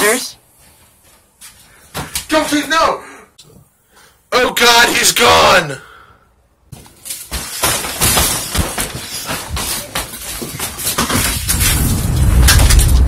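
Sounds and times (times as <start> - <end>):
hurried footsteps: 6.7 - 12.3.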